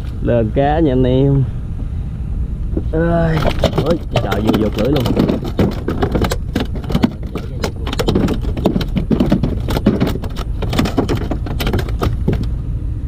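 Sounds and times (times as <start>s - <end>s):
fish flopping on wooden planks: 3.3s - 12.6s.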